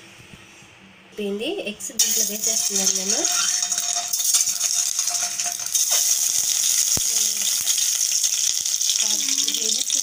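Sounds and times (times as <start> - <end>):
oil sizzling in a pan: 2.0 - 10.0.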